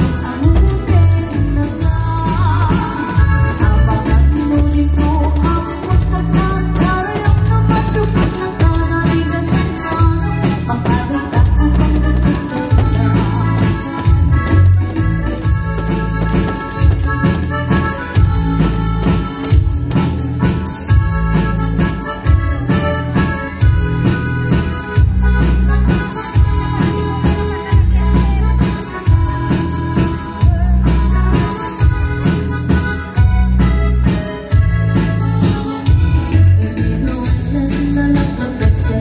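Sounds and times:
drum beat: 0.0 - 24.2
bass: 0.0 - 39.0
keyboard melody: 0.0 - 39.0.

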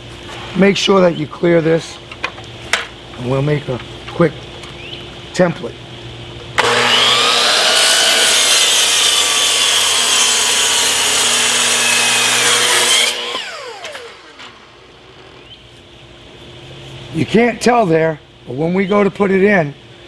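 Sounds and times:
miter saw cutting wood: 6.6 - 15.4.

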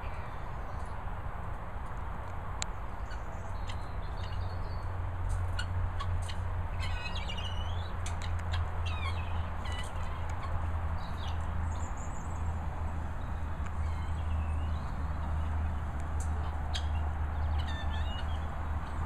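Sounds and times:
guinea fowl chirping: 5.5 - 11.4, 16.4 - 19.0.

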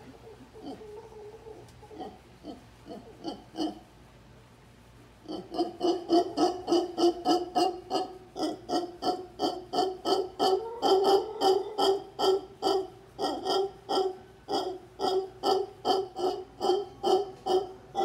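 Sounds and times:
howler monkeys grunting: 0.0 - 3.9, 5.2 - 18.0.

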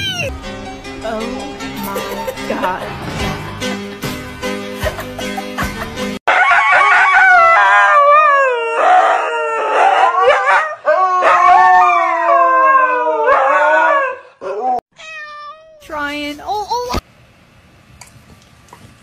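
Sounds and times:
husky howling: 6.3 - 14.8.

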